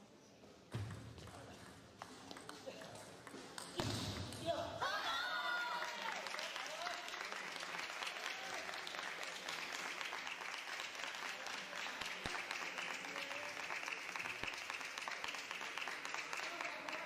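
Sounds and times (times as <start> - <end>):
crowd applauding: 5.2 - 17.0.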